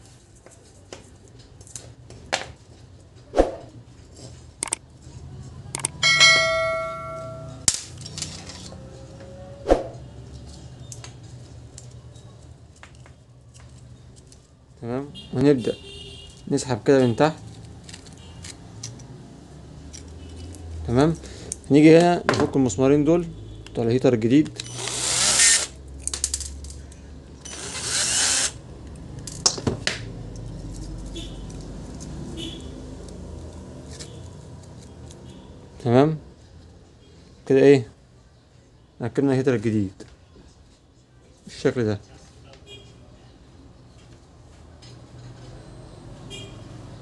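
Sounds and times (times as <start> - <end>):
sharp tool clicks: 4.6 - 4.8
metallic ring: 6.0 - 7.7
cordless drill running: 24.7 - 25.7, 27.4 - 28.6.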